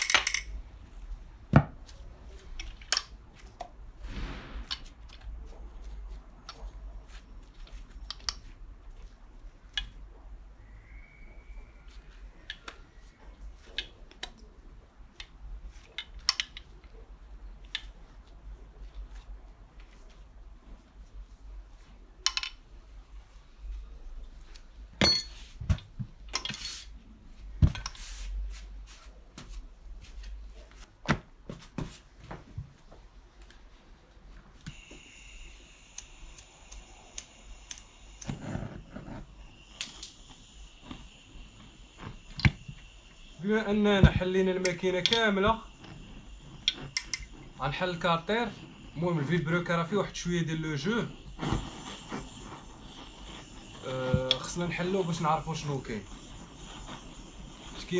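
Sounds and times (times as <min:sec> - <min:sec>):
metal tools clicking and tapping: 0:00.0 - 0:00.6, 0:22.2 - 0:22.6, 0:25.0 - 0:25.4
metallic clicks and clinks: 0:00.0 - 0:00.6
faint steady high tone: 0:10.5 - 0:13.6.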